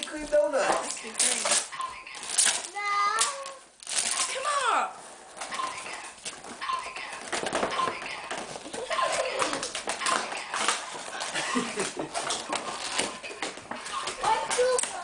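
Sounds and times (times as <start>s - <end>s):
cardboard rustling and scraping: 4.0s - 15.0s.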